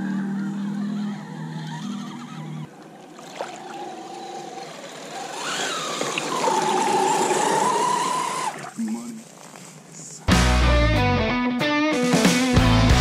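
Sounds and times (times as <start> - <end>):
electric motor and gears whining: 0.0 - 8.7
water splashing: 2.2 - 10.0.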